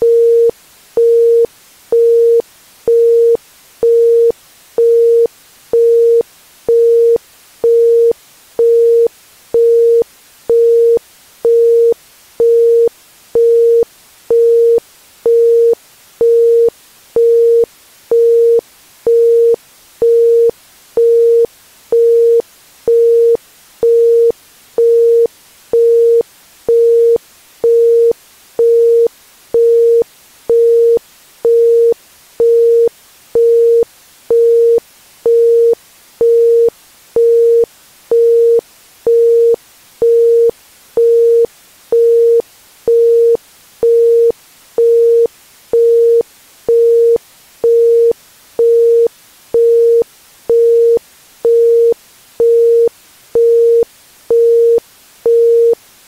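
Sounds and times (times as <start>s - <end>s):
faint background hiss: 0.0s - 56.0s.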